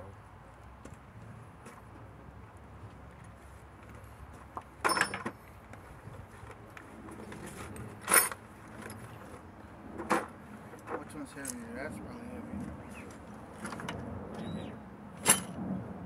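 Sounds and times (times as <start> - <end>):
metallic clanks and rattles: 4.8 - 5.4, 7.2 - 9.4, 15.2 - 15.6.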